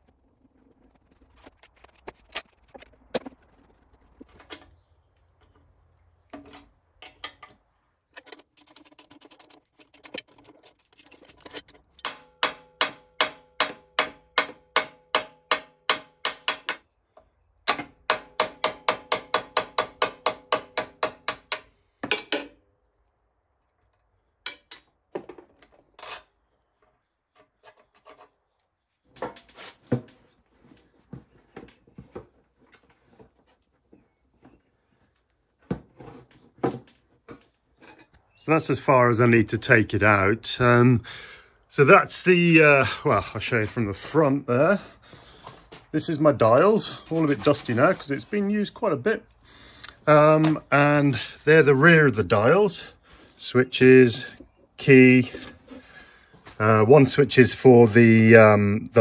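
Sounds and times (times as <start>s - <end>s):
metal scraping: 8.2s - 12.1s.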